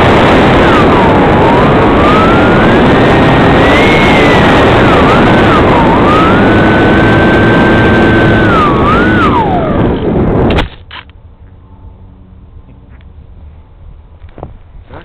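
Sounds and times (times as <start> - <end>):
wind rush: 0.0 - 15.0
model airplane motor whining: 0.6 - 10.4.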